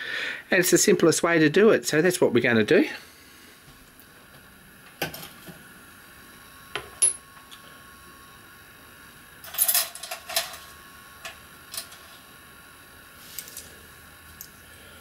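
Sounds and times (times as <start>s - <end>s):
small metal pieces clinking: 9.5s - 10.6s.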